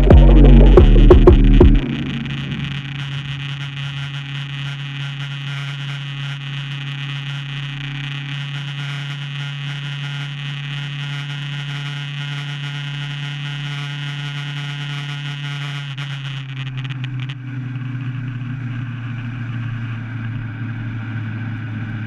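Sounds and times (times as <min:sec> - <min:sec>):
car engine and tyres droning: 0:16.7 - 0:22.0.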